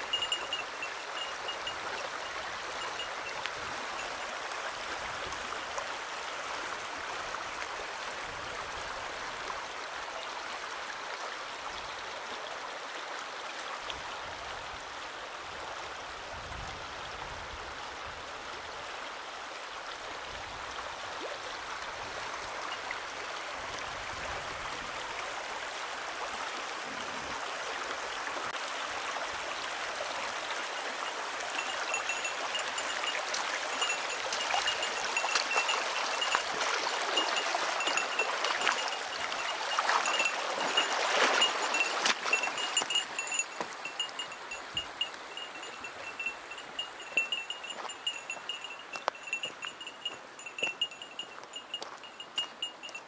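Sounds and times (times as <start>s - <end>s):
stream running over stones: 0.0s - 53.0s.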